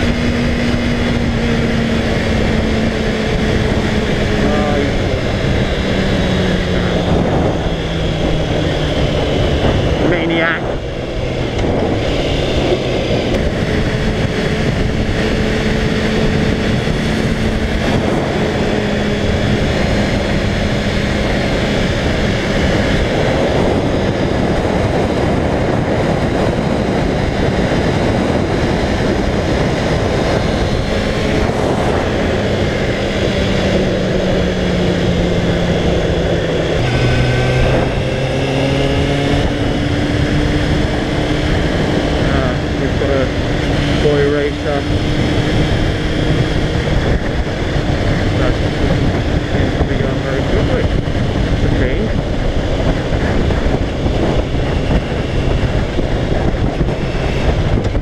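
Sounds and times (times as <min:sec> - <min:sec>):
motorcycle engine running: 0:00.0 - 0:58.0
wind rush and road noise: 0:00.0 - 0:58.0.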